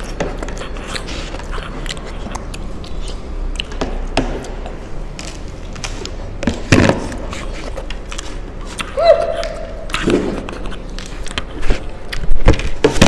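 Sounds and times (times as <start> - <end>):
chewing: 0.0 - 3.8, 7.3 - 12.4.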